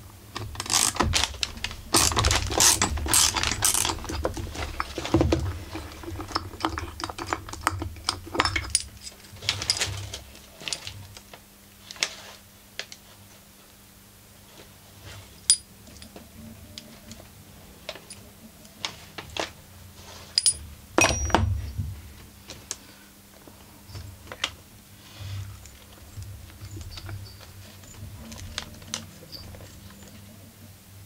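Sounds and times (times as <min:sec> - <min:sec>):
metal clatter: 0:00.4 - 0:10.9.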